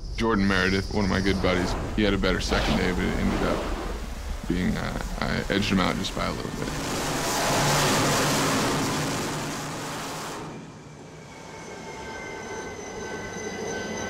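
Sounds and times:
steady high whine: 0.0s - 14.0s
jet engine roar: 0.4s - 11.5s.

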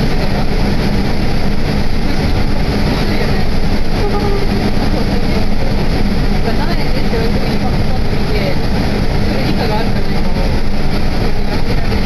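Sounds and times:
bus engine hum: 0.0s - 12.0s
rumbling running noise: 0.0s - 12.0s.

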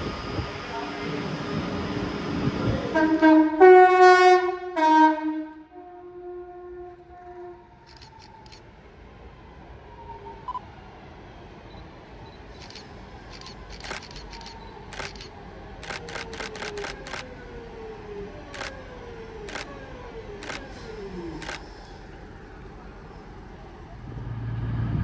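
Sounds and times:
camera shutters clicking: 7.9s - 8.6s, 12.6s - 17.2s, 20.4s - 20.7s, 21.4s - 21.6s.

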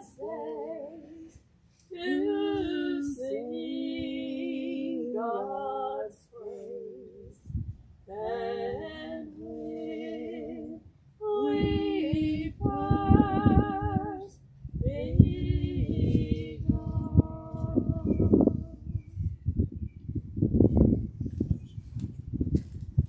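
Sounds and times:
woman singing with vibrato: 0.0s - 7.4s, 8.1s - 18.9s.

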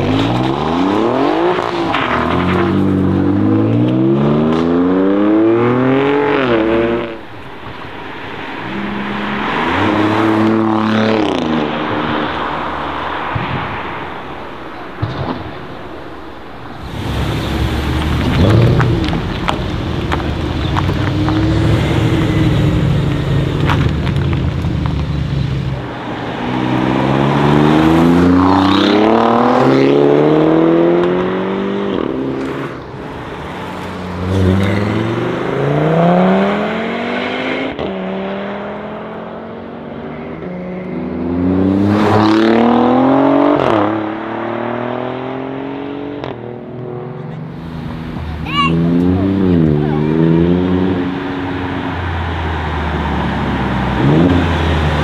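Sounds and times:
car exhaust under hard acceleration: 16.6s - 26.0s.

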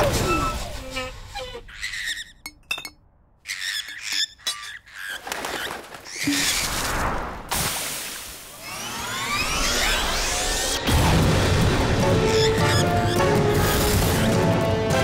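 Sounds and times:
wings flapping: 4.9s - 7.3s.

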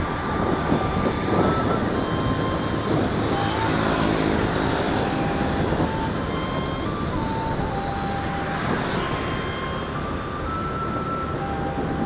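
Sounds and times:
motorbike engine and tyre noise: 0.0s - 12.0s
passing engine hum: 0.0s - 12.0s
wind rushing over microphone: 0.0s - 12.0s.

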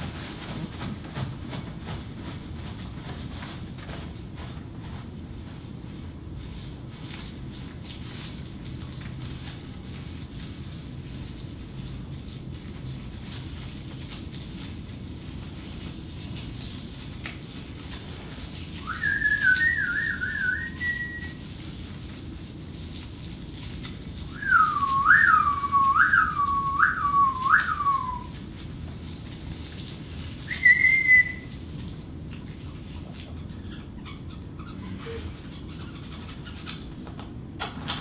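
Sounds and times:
bird-like whistling: 18.8s - 21.4s, 24.3s - 28.3s, 30.5s - 31.5s.

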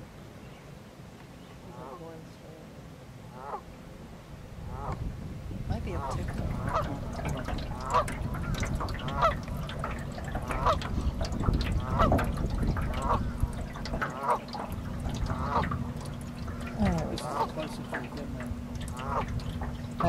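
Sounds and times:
goose honking: 3.3s - 3.7s, 4.7s - 5.0s, 6.0s - 13.3s, 14.0s - 15.8s, 16.4s - 19.7s.

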